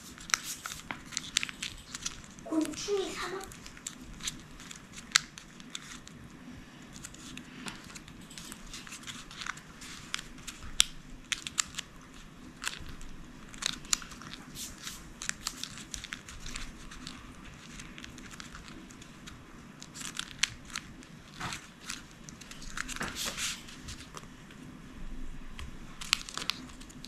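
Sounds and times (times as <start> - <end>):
paper snapping: 0.0 - 2.7
paper crinkling: 0.0 - 24.7, 25.9 - 27.0.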